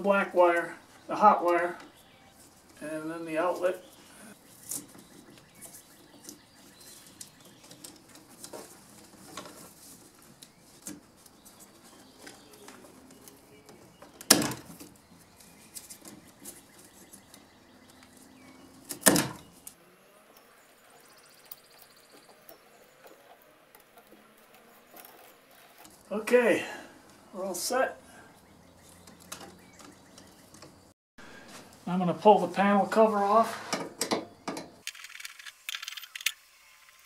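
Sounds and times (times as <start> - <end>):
rustling of wires and tape: 3.5 - 18.4.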